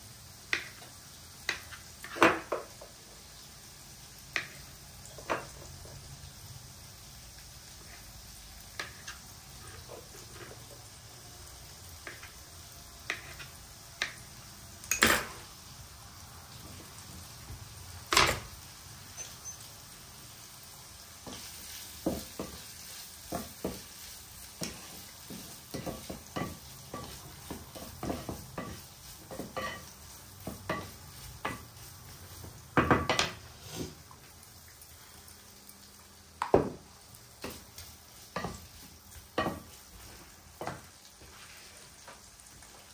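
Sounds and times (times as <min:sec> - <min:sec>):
olives sizzling in a pan: 0:00.0 - 0:42.9
wooden spoon clacking against pan: 0:24.6 - 0:31.7.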